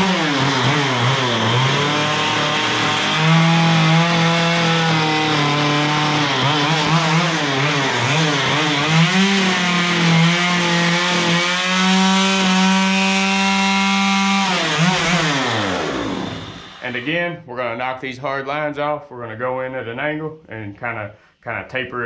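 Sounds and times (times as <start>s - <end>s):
chainsaw cutting wood: 0.0s - 17.2s.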